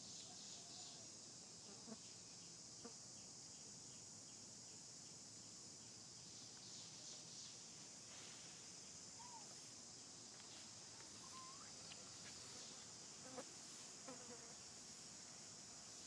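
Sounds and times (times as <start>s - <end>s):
insects droning: 0.0s - 16.0s
faint squeaks: 11.1s - 12.6s.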